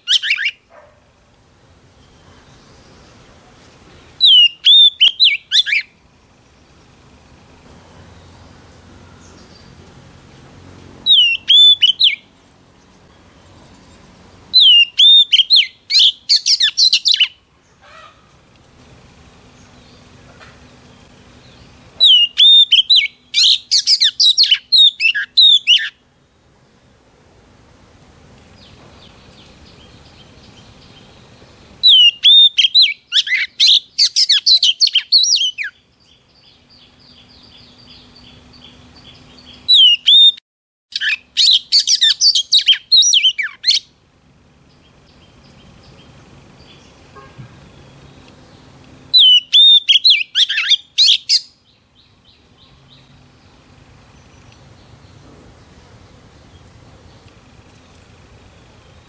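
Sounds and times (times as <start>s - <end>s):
bird singing whistled song: 0.0s - 0.6s, 4.0s - 5.9s, 11.1s - 12.3s, 14.5s - 17.4s, 21.4s - 26.0s, 28.6s - 43.9s, 44.8s - 53.2s
soft bird twittering: 0.0s - 0.9s, 1.9s - 7.0s, 11.0s - 17.8s, 19.5s - 26.0s, 28.6s - 43.9s, 44.7s - 59.0s.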